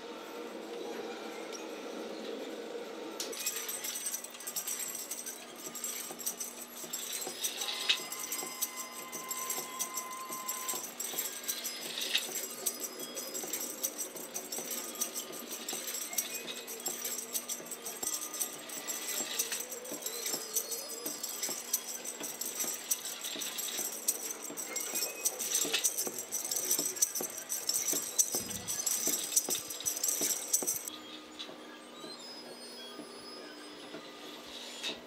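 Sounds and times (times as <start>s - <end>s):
tambourine jingles: 3.3s - 30.9s
mechanism squeaks: 3.3s - 35.0s.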